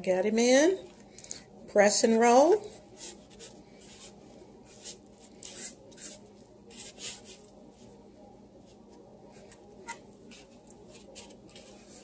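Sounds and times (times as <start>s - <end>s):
cornmeal brushing and scraping: 2.6s - 8.0s, 8.6s - 12.0s.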